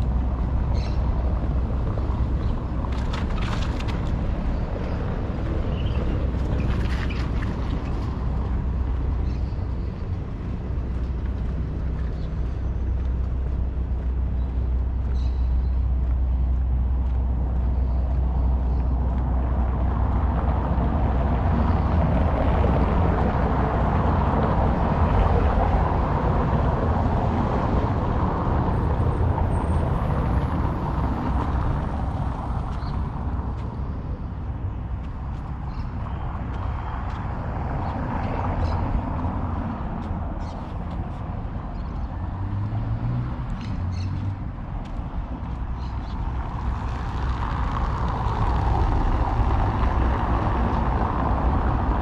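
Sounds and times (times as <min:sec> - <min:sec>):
traffic rumble: 0:00.0 - 0:52.0
vehicle passing: 0:00.0 - 0:52.0.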